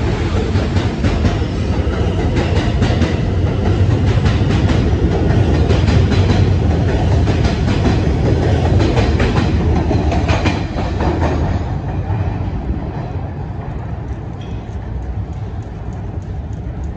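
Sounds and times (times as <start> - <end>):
train rumble: 0.0 - 16.9
train wheels clicking over rail joints: 0.0 - 16.9.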